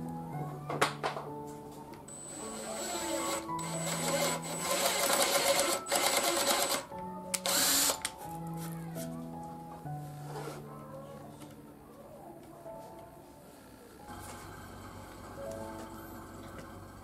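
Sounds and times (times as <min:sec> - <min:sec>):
background music: 0:00.0 - 0:17.0
cordless driver driving screw: 0:02.1 - 0:08.1.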